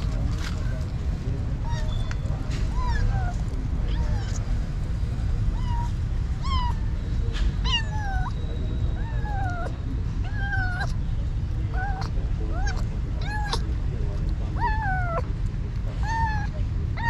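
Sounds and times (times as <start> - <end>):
cat meowing: 2.7 - 4.5, 5.5 - 7.0, 7.6 - 8.4, 9.0 - 11.0, 11.7 - 13.7, 14.6 - 15.3, 16.0 - 17.0.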